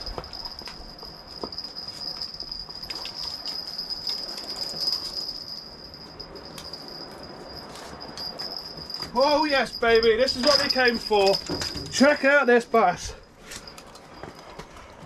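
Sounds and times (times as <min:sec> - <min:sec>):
fishing tackle clicks and knocks: 0:10.4 - 0:12.0, 0:13.5 - 0:14.8.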